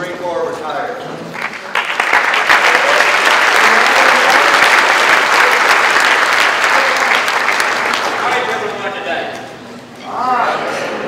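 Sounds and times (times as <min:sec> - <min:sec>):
audience applauding: 0:01.3 - 0:09.0.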